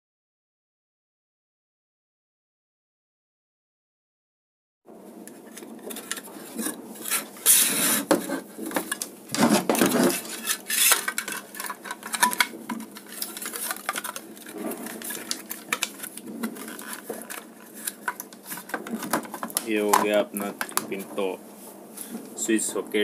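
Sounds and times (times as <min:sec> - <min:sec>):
scraping clatters on wooden bench: 0:05.4 - 0:20.9
plastic clicks and knocks: 0:11.0 - 0:20.9.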